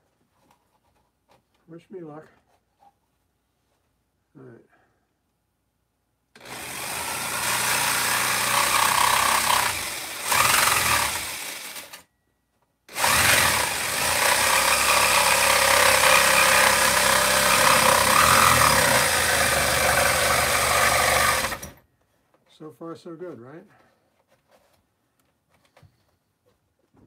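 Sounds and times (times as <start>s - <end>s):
handheld power saw cutting: 6.4s - 12.1s, 12.9s - 21.8s.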